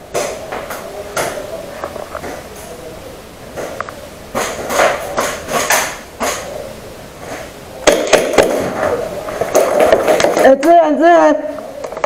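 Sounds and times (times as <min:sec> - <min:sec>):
sharp knocks and clatters: 0:07.8 - 0:10.7.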